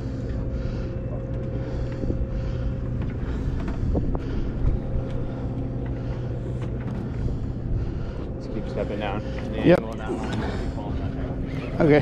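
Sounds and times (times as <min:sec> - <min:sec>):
boat machinery hum: 0:00.0 - 0:12.0
wind on microphone: 0:02.0 - 0:09.7.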